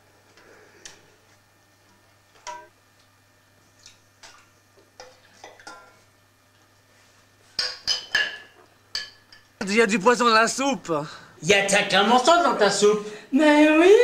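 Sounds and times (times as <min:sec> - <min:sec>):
ladle clinking against pot and plate: 0:07.6 - 0:09.5.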